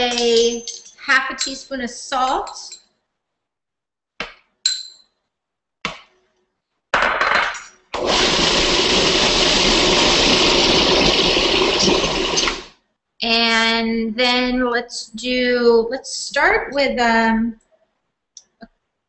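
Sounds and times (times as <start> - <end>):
metal spoons clinking on ceramic bowls: 0.0 - 2.9, 4.7 - 5.1
food processor grinding: 7.9 - 12.7.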